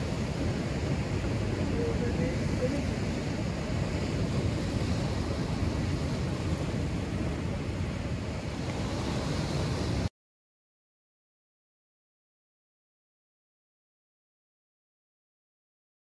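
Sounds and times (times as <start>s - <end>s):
sea surf breaking on rocks: 0.0s - 10.1s
wind rumbling on microphone: 0.0s - 10.1s.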